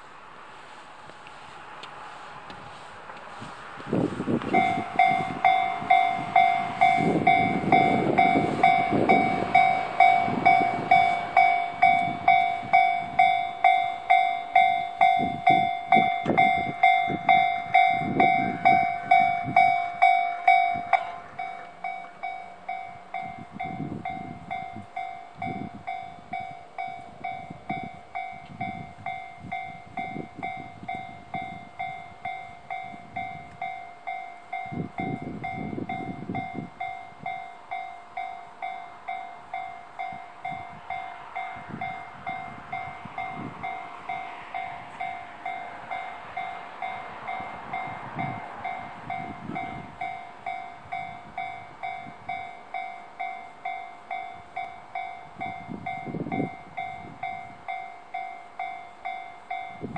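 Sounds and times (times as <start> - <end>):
level crossing warning bell: 4.0 - 59.9.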